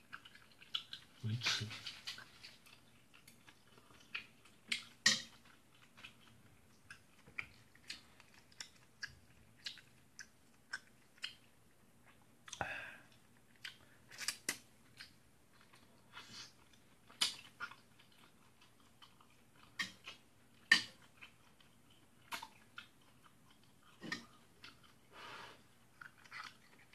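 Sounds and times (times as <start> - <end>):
quiet chewing: 0.0 - 26.9.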